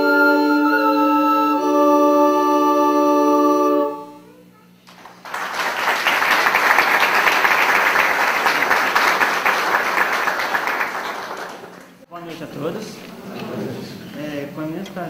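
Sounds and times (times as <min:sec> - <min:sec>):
recorder ensemble chord: 0:00.0 - 0:04.3
audience applause: 0:04.9 - 0:12.0.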